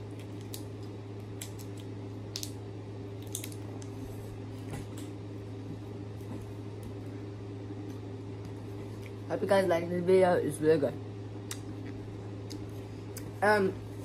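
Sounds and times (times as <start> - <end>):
steady low hum: 0.0 - 14.0
candy wrapper clicks and crinkles: 0.1 - 4.0.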